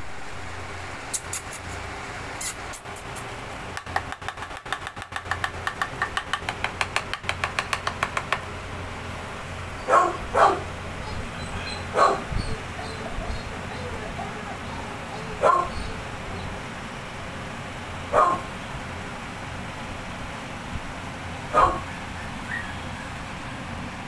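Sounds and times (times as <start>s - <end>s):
rapid clicks: 2.8s - 8.5s
puppy yelping: 9.8s - 16.5s, 18.2s - 18.5s, 21.5s - 23.2s.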